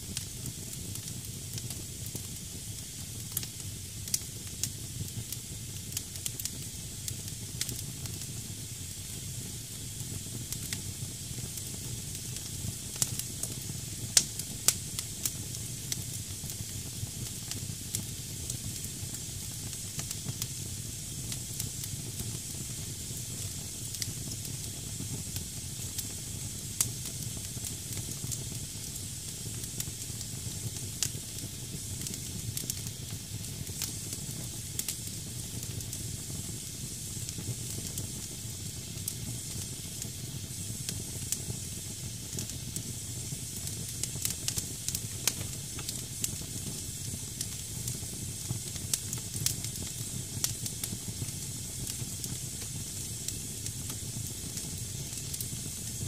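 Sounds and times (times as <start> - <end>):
damp firewood hissing: 0.0 - 56.0
low fire rumble: 0.0 - 56.0
fire crackling and popping: 0.1 - 56.0.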